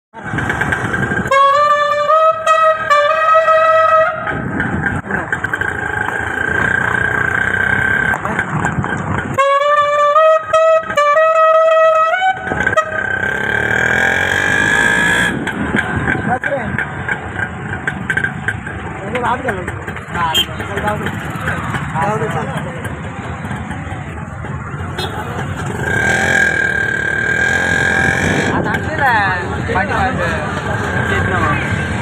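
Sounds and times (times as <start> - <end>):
busy street noise: 0.1 - 32.0.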